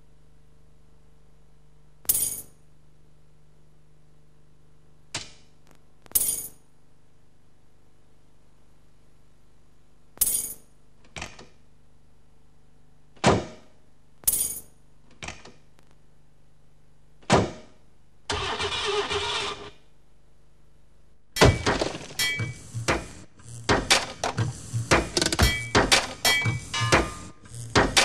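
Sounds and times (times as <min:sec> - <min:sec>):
sharp metal bangs: 0:21.4 - 0:24.2
metal clanks and knocks: 0:21.4 - 0:27.2.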